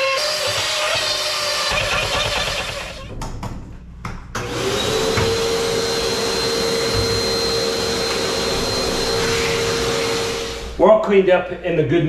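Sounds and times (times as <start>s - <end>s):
shop vacuum motor running: 0.0s - 3.1s, 4.4s - 10.8s.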